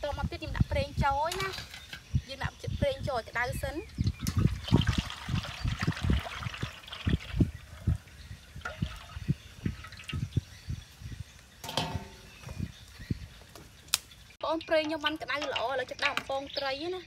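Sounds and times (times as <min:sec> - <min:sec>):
oil pouring into a wok: 0:04.3 - 0:07.8.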